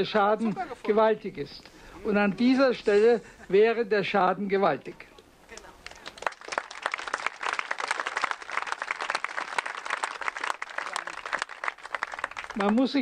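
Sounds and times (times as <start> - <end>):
crowd applauding: 5.8 - 13.0.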